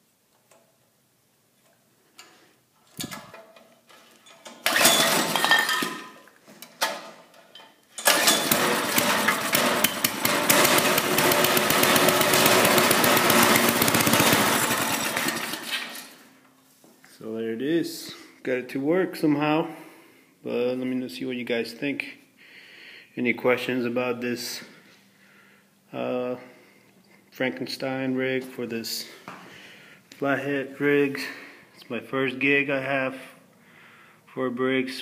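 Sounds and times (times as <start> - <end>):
small engine starting and running: 4.6 - 5.4, 8.0 - 16.3.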